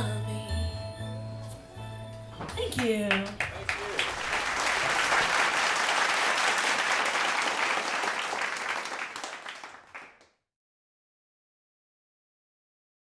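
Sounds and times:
audience applauding: 2.5 - 10.3.

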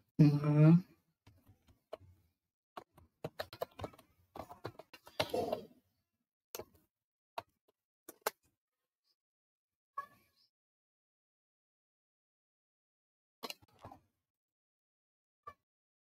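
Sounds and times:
typing on computer keyboard: 2.9 - 5.4.

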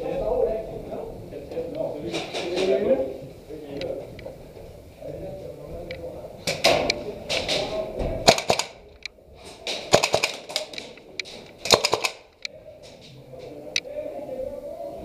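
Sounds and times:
airsoft guns firing bursts: 8.2 - 8.8, 9.6 - 12.4.

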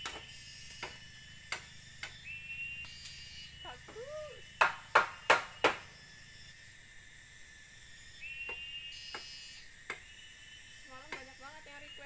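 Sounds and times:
forest insects buzzing: 0.0 - 12.0
bamboo knocking on bamboo: 4.6 - 5.8, 11.0 - 11.3.

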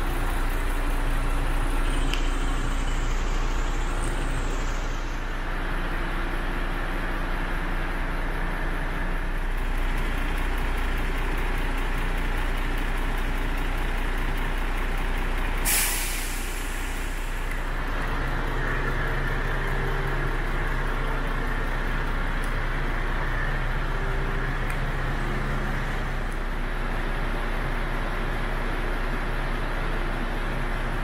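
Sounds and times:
diesel truck engine idling: 0.0 - 31.0
compressed air hiss: 15.6 - 17.2.

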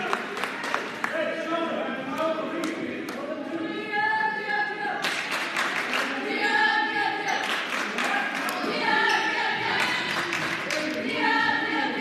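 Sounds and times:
knocks and claps: 5.0 - 6.1, 7.4 - 8.8, 9.6 - 11.0.

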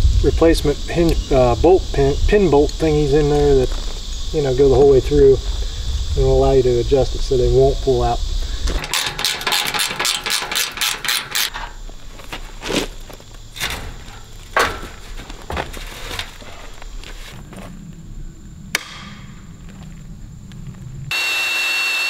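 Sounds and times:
metal knocks and clanks: 8.7 - 17.3.

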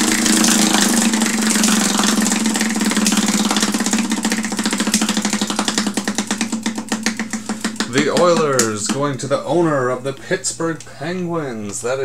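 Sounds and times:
prize wheel pointer clicking: 0.0 - 9.2.

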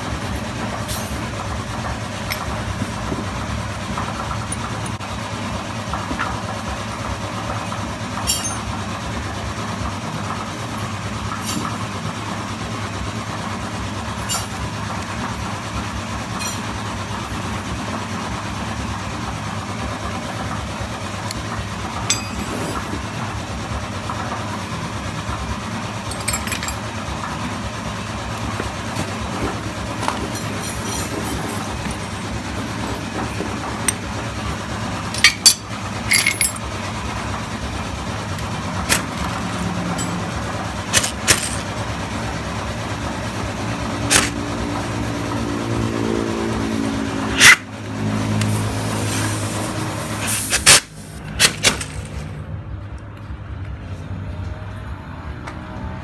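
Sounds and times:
steady mechanical hum: 0.0 - 56.0
metallic clicks of hand tools: 44.1 - 44.4.

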